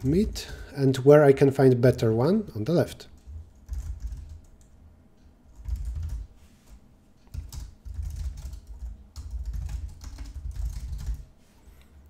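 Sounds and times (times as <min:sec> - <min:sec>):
typing on a computer keyboard: 0:03.2 - 0:04.8, 0:05.5 - 0:06.3, 0:07.3 - 0:11.3.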